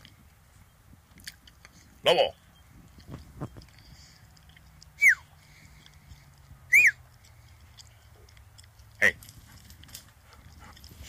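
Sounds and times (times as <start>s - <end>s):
person whistling for dog: 5.0s - 5.3s, 6.7s - 7.0s.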